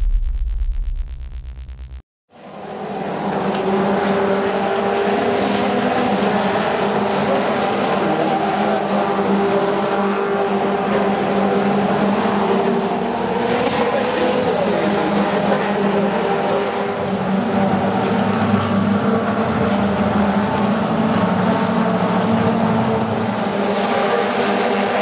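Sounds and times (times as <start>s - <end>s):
electronic intro music: 0.0s - 2.0s
race car engines running: 2.4s - 25.0s.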